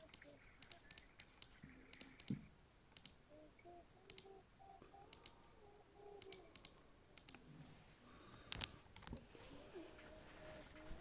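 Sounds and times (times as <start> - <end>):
faint clicks: 0.0 - 5.4, 6.1 - 7.4.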